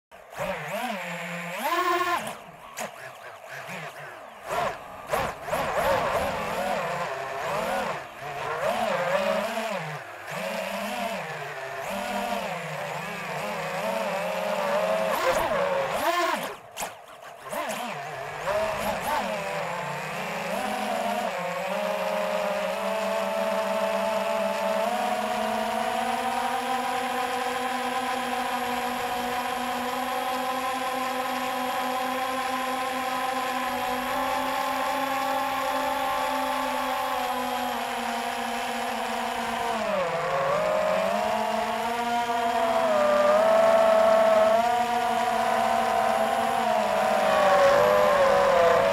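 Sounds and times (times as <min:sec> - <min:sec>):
electric motors and propellers whining: 0:00.1 - 0:48.9.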